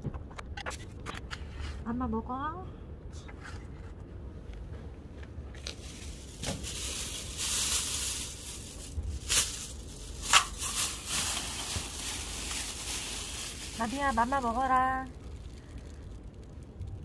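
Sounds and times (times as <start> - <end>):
plastic rustling and crinkling: 5.5 - 17.0.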